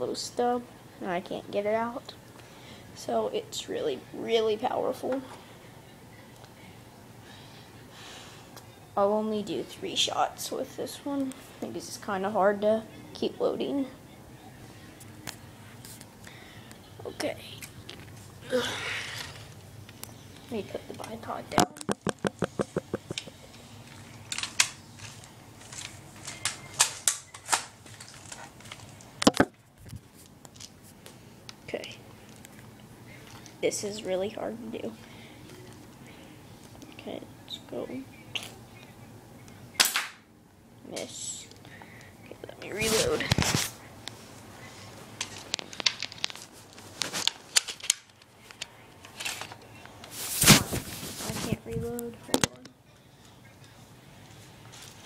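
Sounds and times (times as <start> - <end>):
plastic clicks and knocks: 21.6 - 23.2
plastic gun clicks and rattles: 24.3 - 29.5, 47.2 - 49.6.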